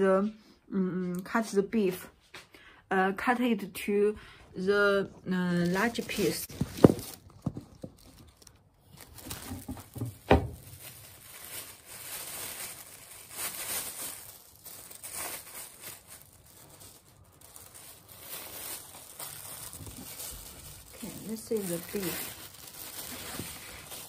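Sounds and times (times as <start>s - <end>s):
plastic gloves crinkling: 4.8s - 24.0s.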